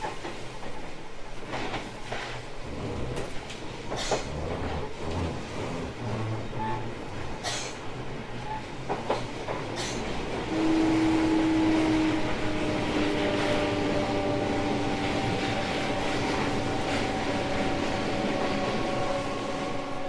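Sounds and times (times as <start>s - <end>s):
electric train running: 2.6s - 7.3s.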